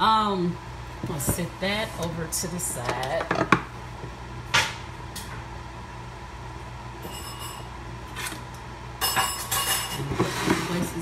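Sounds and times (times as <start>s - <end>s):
steady low hum: 0.0s - 11.0s
crockery clinking: 9.0s - 10.1s.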